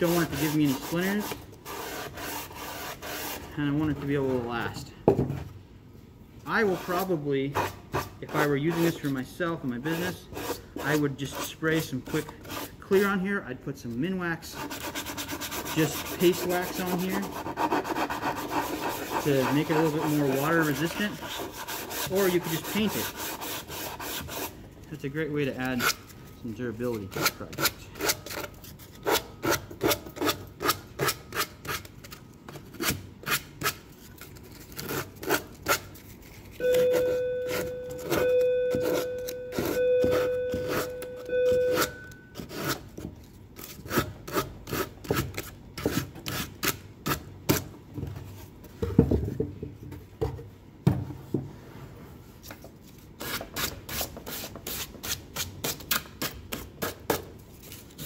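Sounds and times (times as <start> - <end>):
sandpaper rubbing wood: 0.0 - 3.5, 14.6 - 24.5
steady buzzing tone: 36.6 - 42.3.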